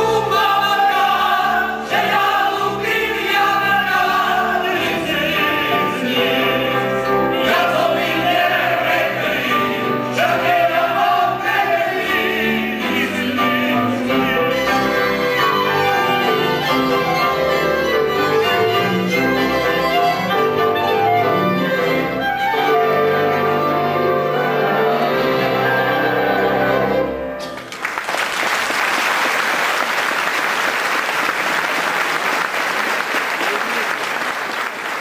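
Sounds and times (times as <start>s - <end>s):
bowed fiddles: 14.1s - 27.5s
clarinet: 14.1s - 27.6s
audience applause: 27.6s - 35.0s.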